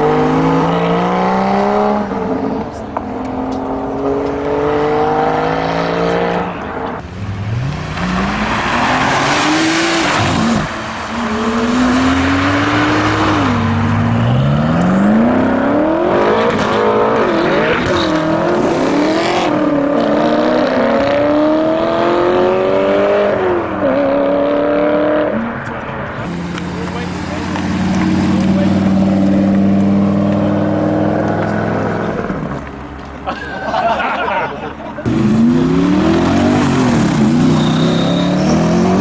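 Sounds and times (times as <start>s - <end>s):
sports car engines accelerating: 0.0s - 39.0s
engine revving: 3.2s - 25.4s, 35.0s - 39.0s.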